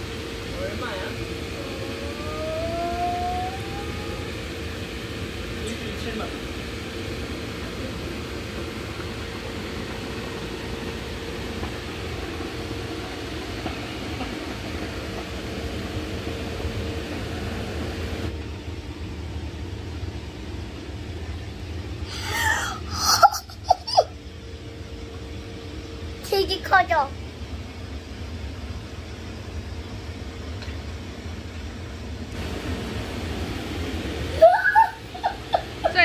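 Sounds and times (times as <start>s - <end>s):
electric air blower humming: 0.0s - 29.6s, 31.1s - 36.0s
child squealing: 34.4s - 35.3s.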